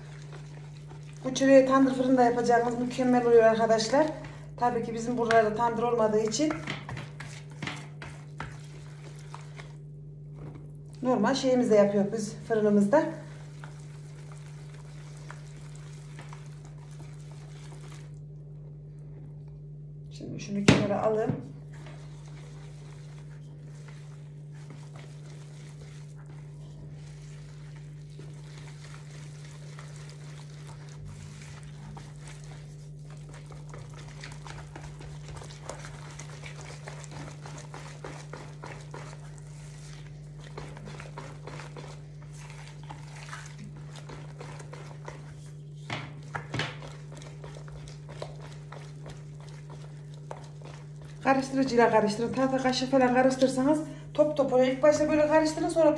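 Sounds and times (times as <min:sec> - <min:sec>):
whisk knocking on bowl: 0:00.0 - 0:09.7, 0:20.6 - 0:53.6
whisk scraping a plastic bowl: 0:00.0 - 0:18.2, 0:20.8 - 0:55.9
steady low hum: 0:00.0 - 0:55.9.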